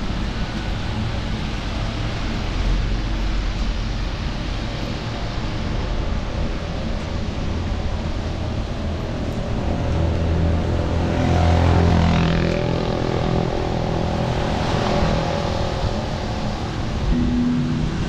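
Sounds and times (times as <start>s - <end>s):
wet road and traffic noise: 0.0s - 18.0s
heavy low rumble: 12.0s - 18.0s.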